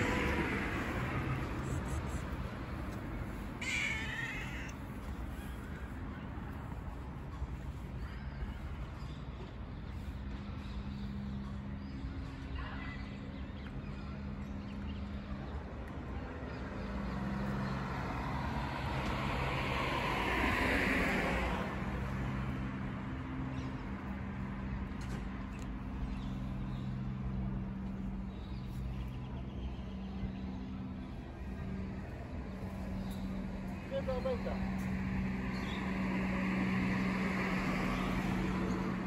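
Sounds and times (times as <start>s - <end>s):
vehicle passing: 0.0s - 6.6s, 16.6s - 39.0s
low traffic engine hum: 0.0s - 39.0s.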